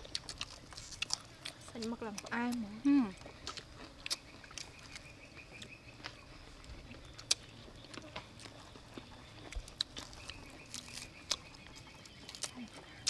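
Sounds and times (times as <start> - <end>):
crunchy chewing: 0.0 - 13.0
lettuce leaves rustling: 0.0 - 13.0.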